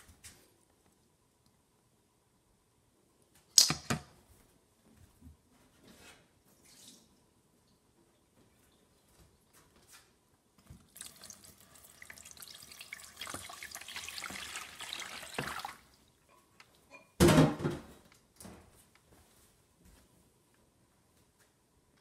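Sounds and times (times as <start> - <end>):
water splashing into steel bowl: 10.9 - 16.0.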